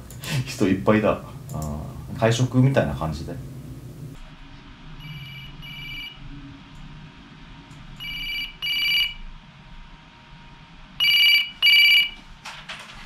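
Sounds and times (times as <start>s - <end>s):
electronic telephone double rings: 11.0s - 12.2s.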